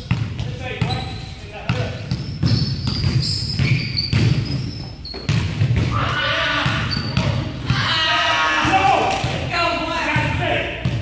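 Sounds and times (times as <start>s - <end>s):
basketball bouncing on hardwood: 0.0s - 1.0s, 1.6s - 6.0s, 10.2s - 11.0s
sneakers squeaking on wood: 0.0s - 7.7s.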